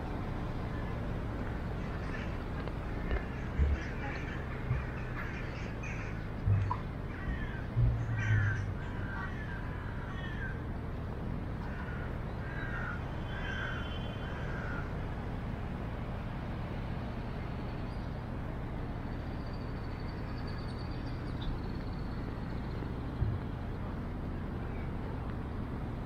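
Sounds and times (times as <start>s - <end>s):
steady background hum: 0.0s - 26.0s
crows cawing: 3.2s - 10.6s, 11.6s - 14.9s.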